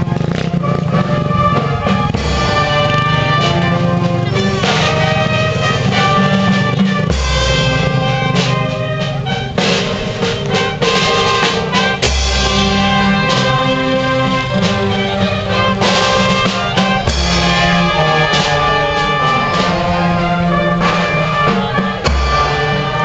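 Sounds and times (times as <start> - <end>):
bass and snare drums: 0.0 - 23.0
brass marching band playing: 0.0 - 23.0
cymbal crashes: 7.1 - 22.9
sousaphone bass line: 9.6 - 23.0.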